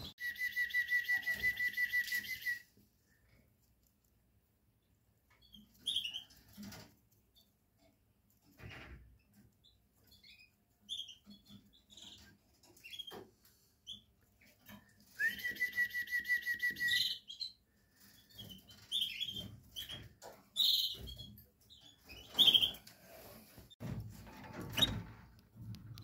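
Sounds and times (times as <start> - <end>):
canaries chirping: 5.3 - 7.5, 8.7 - 15.2, 16.8 - 23.2.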